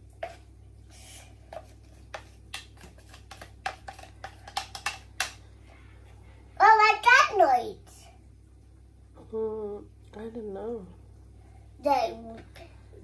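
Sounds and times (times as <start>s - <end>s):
spoon tapping in plastic jug: 1.5s - 5.4s.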